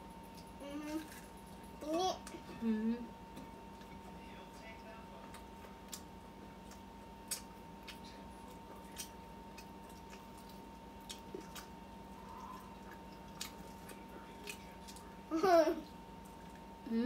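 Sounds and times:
steady low hum: 0:00.0 - 0:17.0
chewing and wet mouth sounds: 0:03.3 - 0:04.2, 0:05.1 - 0:16.8.

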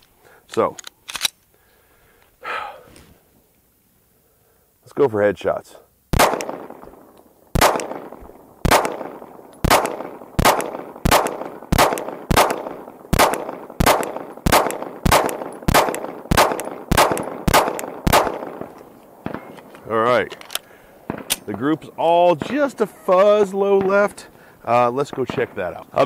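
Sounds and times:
pistol shots echoing: 0:06.1 - 0:19.7, 0:21.0 - 0:24.3, 0:25.0 - 0:26.0.

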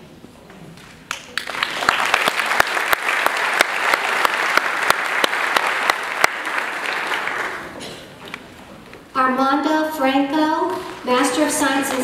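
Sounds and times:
audience applauding: 0:01.1 - 0:08.4
sharp individual claps: 0:01.1 - 0:08.4.

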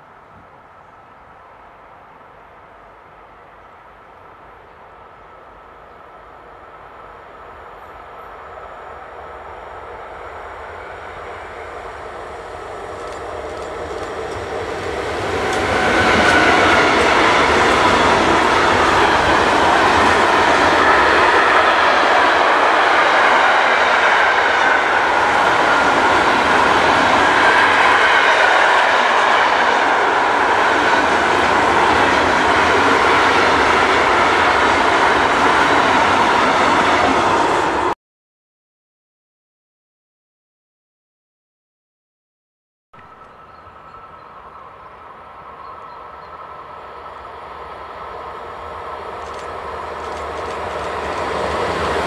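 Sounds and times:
freight train passing: 0:00.0 - 0:38.0, 0:43.0 - 0:52.0
wheels on rails: 0:12.0 - 0:37.6, 0:48.8 - 0:52.0.

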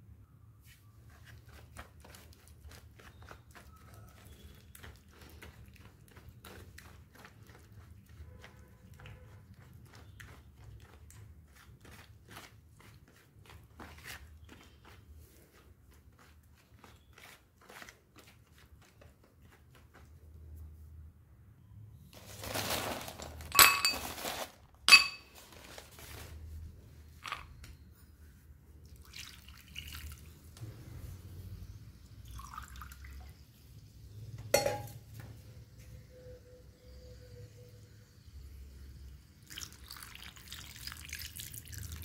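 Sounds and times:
spoon stirring wet paste: 0:00.9 - 0:20.8
spoon clinking on glass bowl: 0:23.5 - 0:24.1, 0:24.9 - 0:25.3, 0:34.5 - 0:35.0.

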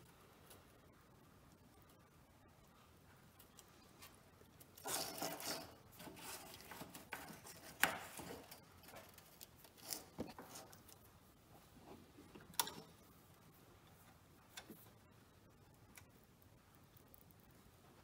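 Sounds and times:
faint rubbing and scraping: 0:03.7 - 0:12.4.

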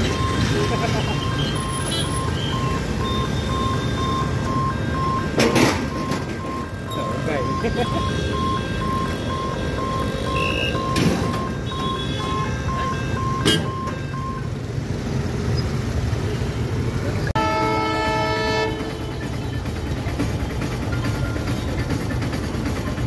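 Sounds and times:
crossing warning beeps: 0:00.0 - 0:14.8
road traffic: 0:00.0 - 0:23.0
vehicle horn: 0:10.2 - 0:10.9, 0:17.3 - 0:19.3.

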